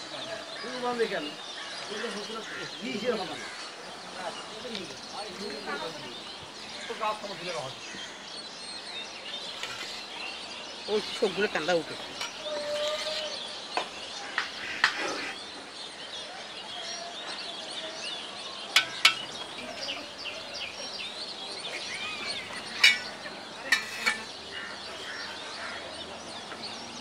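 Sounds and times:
small birds chirping: 0.0 - 27.0
metal ladle clinking on pot: 18.8 - 19.4, 22.6 - 24.3.

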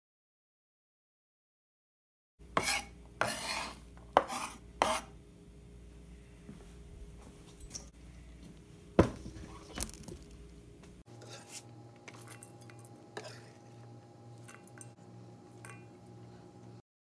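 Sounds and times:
knife scraping against metal bowl: 2.6 - 5.2, 11.1 - 13.6.

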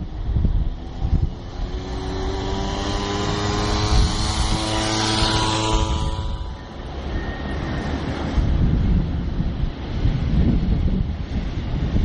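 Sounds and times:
vehicle humming note: 0.0 - 9.3
vehicle passing rush: 0.0 - 12.0.

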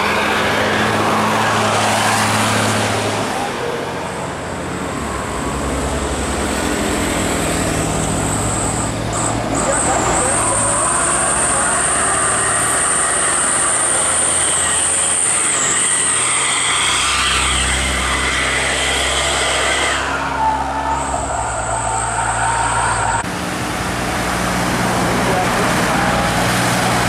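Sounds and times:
bus diesel engines passing: 0.0 - 27.0
high-pitched whine: 8.2 - 23.2.

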